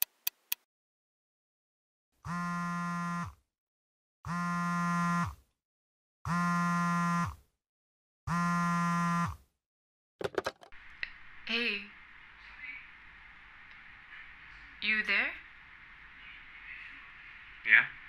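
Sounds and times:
smartphone vibrating buzzes: 2.2 - 3.4, 4.3 - 5.4, 6.3 - 7.5, 8.3 - 9.5.

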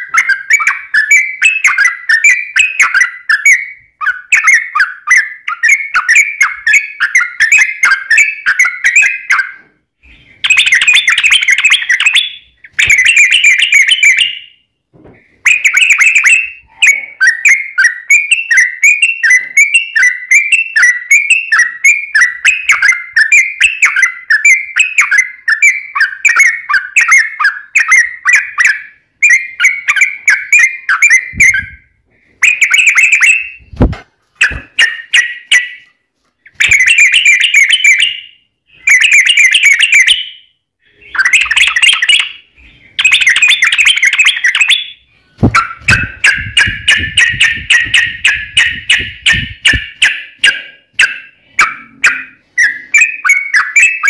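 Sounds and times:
bird singing chattering song: 0.0 - 14.7, 15.4 - 35.9, 36.5 - 54.0
low thumps: 33.6 - 34.8, 45.4 - 50.0.

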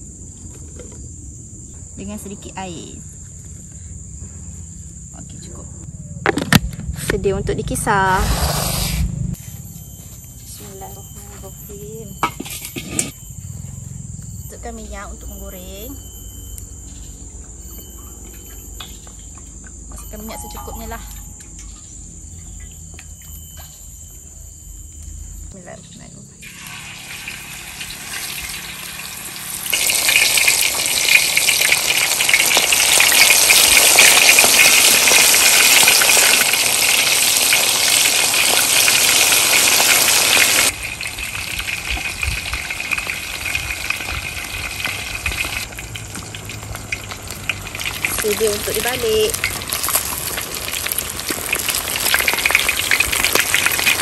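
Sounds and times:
fish sizzling in hot oil: 26.4 - 54.0.

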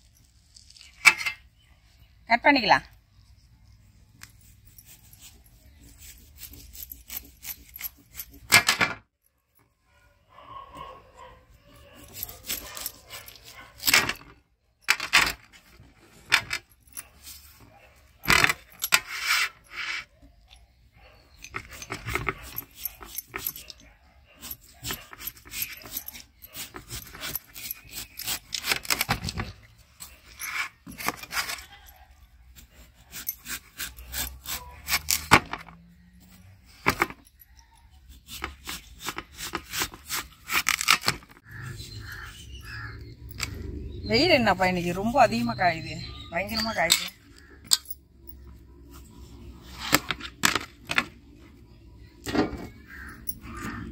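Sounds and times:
knife slicing watermelon rind: 12.0 - 13.9, 24.5 - 29.1, 32.6 - 35.3, 38.1 - 42.4.

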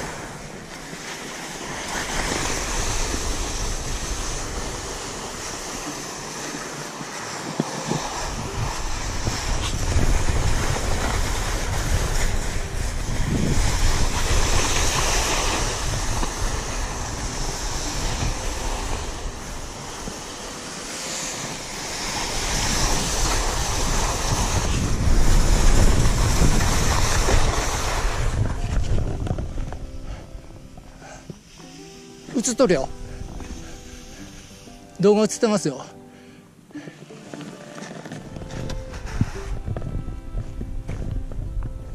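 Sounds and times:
skis scraping over snow: 0.0 - 41.9
wind buffeting microphone: 1.6 - 6.4, 7.5 - 20.3, 21.6 - 31.2, 32.5 - 34.6, 38.2 - 41.9.

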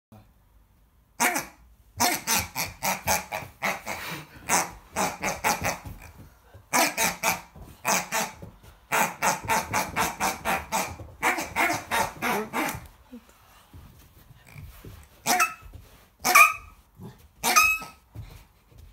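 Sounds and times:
squeaky toy squeaking: 1.2 - 12.9, 15.2 - 16.8, 17.4 - 18.1.

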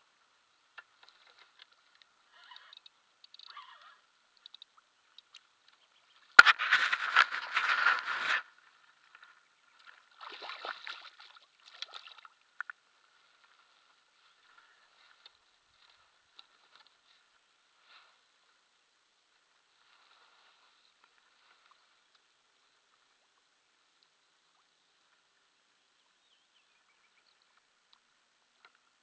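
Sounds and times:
water dripping: 4.3 - 5.8
water splashing: 9.7 - 12.7.

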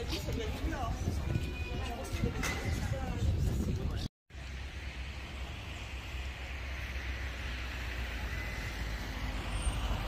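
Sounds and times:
wind on microphone: 0.0 - 4.1.

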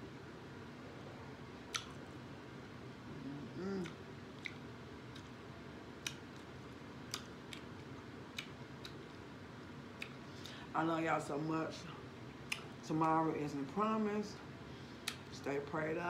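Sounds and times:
mouth clicks and wet chewing: 1.7 - 2.0, 3.8 - 5.4, 7.1 - 9.2, 10.0 - 10.6
person humming mm: 3.1 - 4.0.

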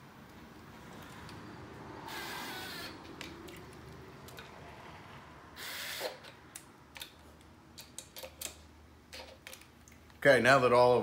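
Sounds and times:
cordless impact driver bursts: 2.1 - 3.0, 5.6 - 6.3.

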